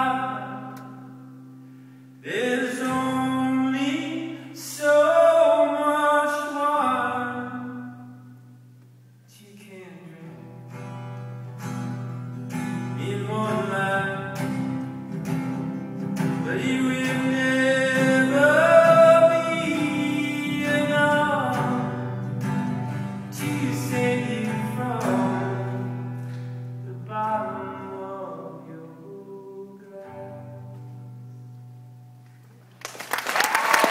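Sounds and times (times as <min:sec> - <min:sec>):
man singing: 0:00.0 - 0:01.2, 0:02.2 - 0:08.3, 0:09.3 - 0:10.5, 0:12.9 - 0:14.7, 0:16.3 - 0:26.0, 0:26.8 - 0:31.0
acoustic guitar: 0:00.0 - 0:33.1.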